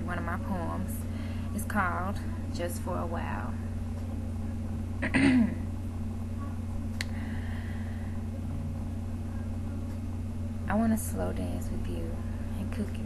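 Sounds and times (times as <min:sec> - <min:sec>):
low electrical hum: 0:00.0 - 0:13.0
woman clearing throat: 0:05.0 - 0:05.7.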